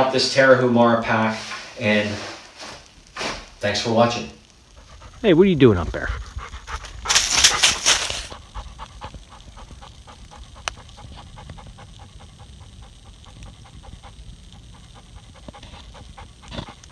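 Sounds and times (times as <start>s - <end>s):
dog panting: 4.6s - 16.9s.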